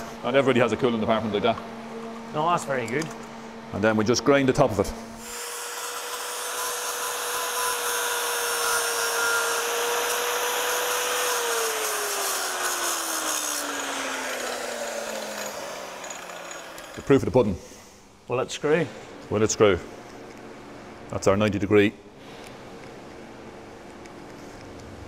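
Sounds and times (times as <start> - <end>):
angle grinder grinding metal: 5.2 - 17.5.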